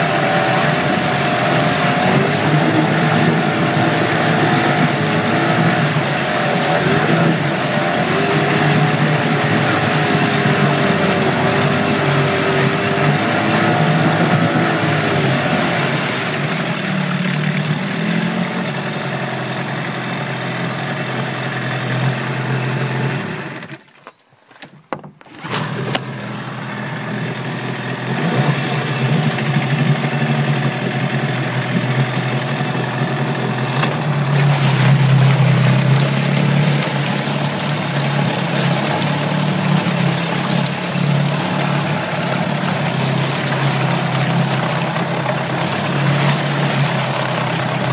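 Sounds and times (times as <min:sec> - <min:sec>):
exhaust churning water: 0:00.0 - 0:47.9
outboard motor running: 0:00.0 - 0:47.9.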